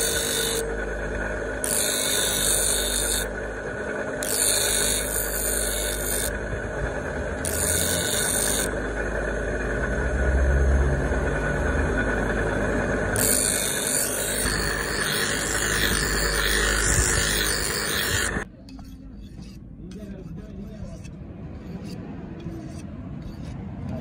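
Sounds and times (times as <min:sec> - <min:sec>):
metal grinding screech: 0:00.0 - 0:00.9, 0:01.6 - 0:03.4, 0:04.2 - 0:08.8, 0:11.2 - 0:24.0
bench grinder motor running: 0:00.0 - 0:18.5.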